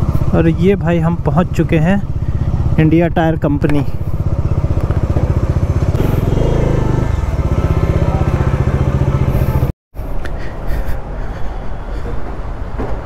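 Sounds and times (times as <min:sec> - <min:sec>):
motorcycle engine idling: 0:00.0 - 0:09.7.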